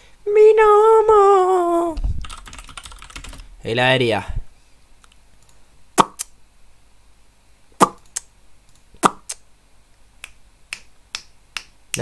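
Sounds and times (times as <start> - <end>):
finger snapping: 10.2 - 12.0.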